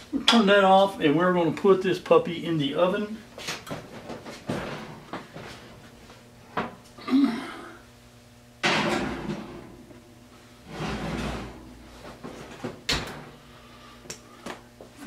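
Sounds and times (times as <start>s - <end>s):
heavy pot set on oven rack: 8.6s - 9.8s, 10.7s - 11.8s
oven door opening: 10.7s - 11.7s, 12.4s - 13.4s.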